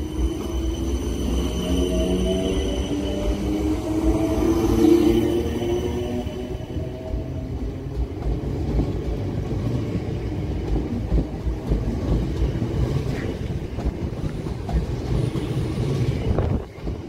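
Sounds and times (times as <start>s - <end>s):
train wheels rumbling on rail: 0.0s - 17.0s.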